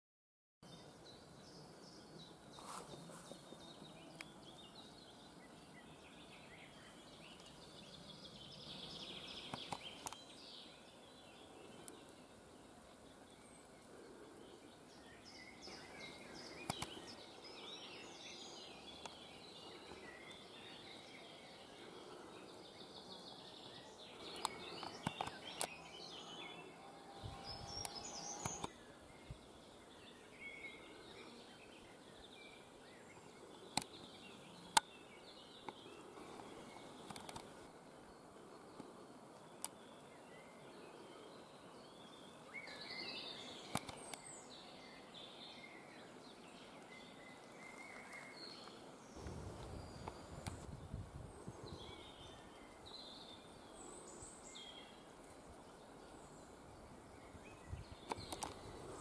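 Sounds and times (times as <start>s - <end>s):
birds singing and calling: 0.6s - 59.0s
faint background hiss: 0.7s - 59.0s
sharp clicks: 37.0s - 37.5s, 43.7s - 44.2s, 58.1s - 58.6s.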